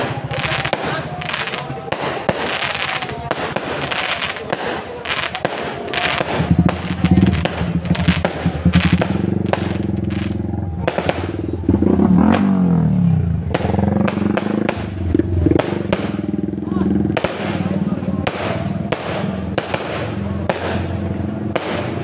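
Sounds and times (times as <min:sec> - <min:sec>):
fireworks bangs and crackles: 0:00.0 - 0:22.0
motorbike engine passing: 0:05.1 - 0:22.0.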